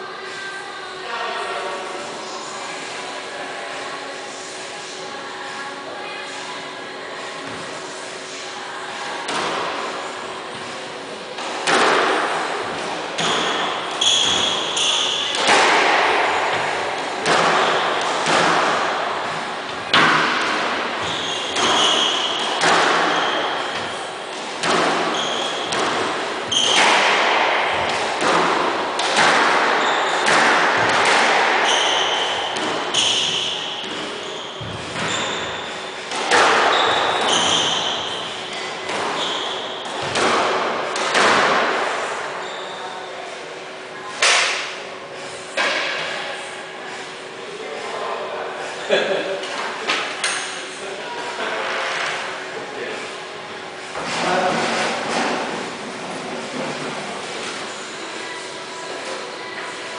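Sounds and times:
squash ball hitting rackets and wall: 0:09.3 - 0:09.8, 0:11.4 - 0:42.5, 0:44.2 - 0:44.8
shoes squeaking on wooden floor: 0:21.0 - 0:22.4, 0:25.1 - 0:25.8, 0:31.6 - 0:35.8.

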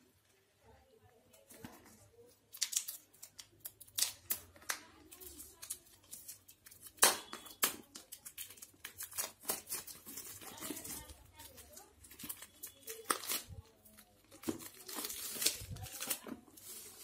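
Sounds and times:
razor blade scraping plastic wrap: 0:05.1 - 0:17.0.

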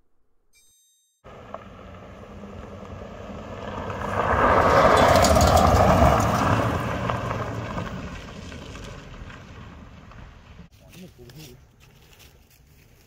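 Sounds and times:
car engine revving: 0:01.3 - 0:10.7
tyres crunching gravel: 0:01.3 - 0:13.0.

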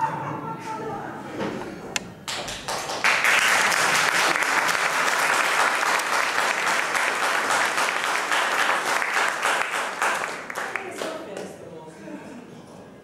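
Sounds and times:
audience applauding: 0:02.2 - 0:11.5.

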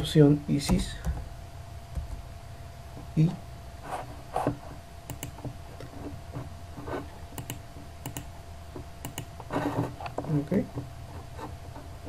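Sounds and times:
steady low hum: 0:00.0 - 0:12.0
keyboard keystroke clicks: 0:05.1 - 0:05.4, 0:07.4 - 0:08.3, 0:09.0 - 0:09.3.

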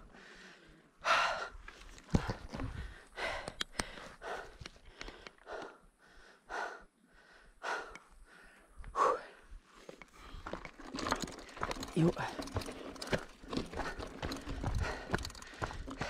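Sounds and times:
person breathing hard: 0:00.0 - 0:16.0
sharp clicks: 0:03.4 - 0:05.7.

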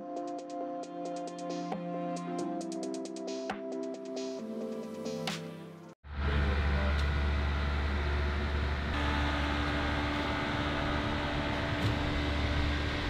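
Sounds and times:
mechanical hum: 0:06.1 - 0:13.0.

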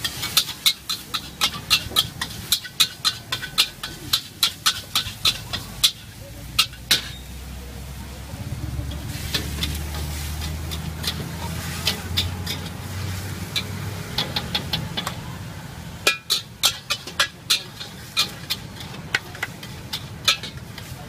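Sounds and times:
metal spatula clanking on wok: 0:00.0 - 0:07.4, 0:08.9 - 0:15.3, 0:16.0 - 0:21.0.

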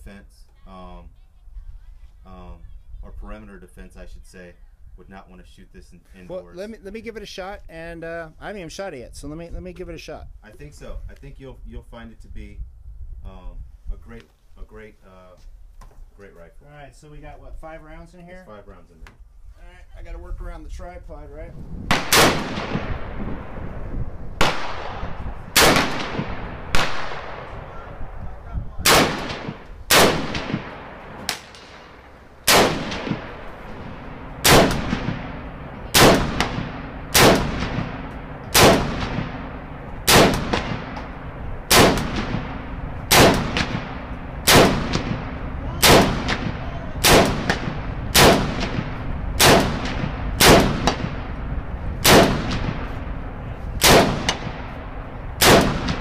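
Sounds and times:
rifle shots with echo: 0:21.9 - 0:23.7, 0:24.4 - 0:56.0.

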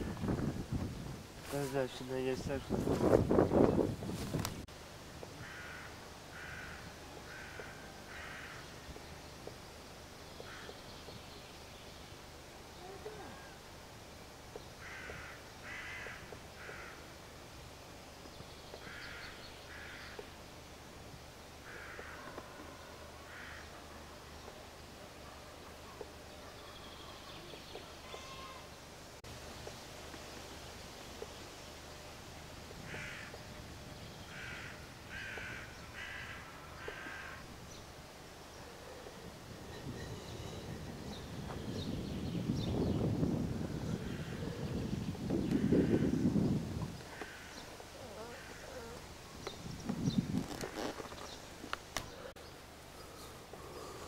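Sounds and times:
crow cawing: 0:05.4 - 0:08.7, 0:14.8 - 0:17.0, 0:18.8 - 0:20.2, 0:21.7 - 0:22.6, 0:23.3 - 0:23.7, 0:32.9 - 0:33.4, 0:34.3 - 0:37.5, 0:47.1 - 0:49.0.

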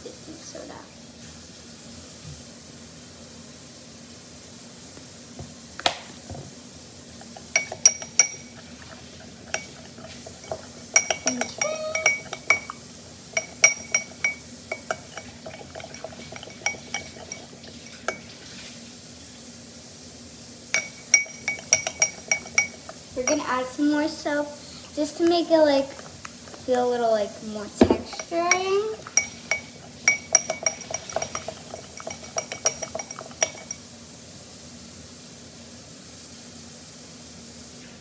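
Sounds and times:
steady low hum: 0:06.6 - 0:34.2
metal spoon clinking on glass bowl: 0:07.4 - 0:18.3, 0:20.7 - 0:23.6, 0:27.8 - 0:33.9.

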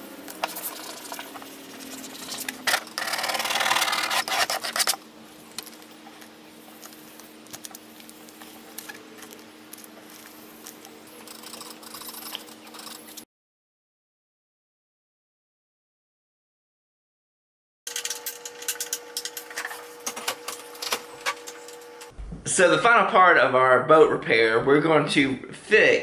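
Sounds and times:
squeegee scraping vinyl decal: 0:00.3 - 0:05.0
transfer tape peeling: 0:01.9 - 0:05.0.

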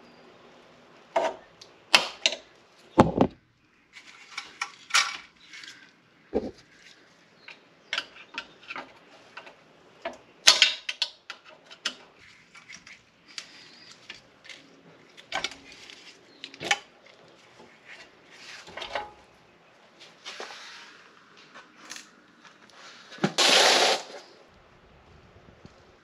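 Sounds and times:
scraping and rustling: 0:02.8 - 0:07.2, 0:11.5 - 0:24.4.

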